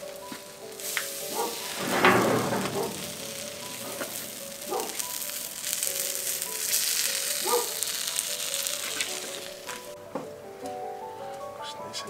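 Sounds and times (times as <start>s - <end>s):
background music with held notes: 0.0s - 2.3s, 3.3s - 12.0s
food sizzling in a pan: 0.5s - 1.8s, 3.0s - 10.0s.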